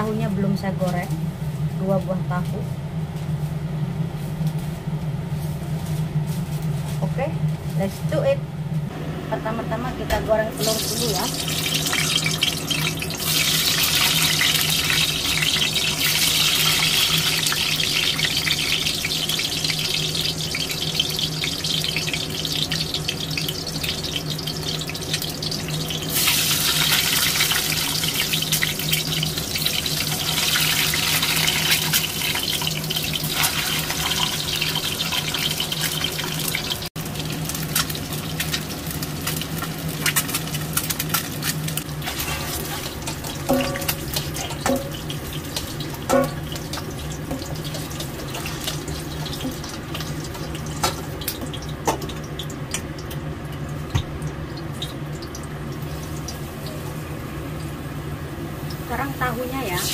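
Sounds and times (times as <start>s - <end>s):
eggs sizzling in hot oil: 10.5s - 59.9s.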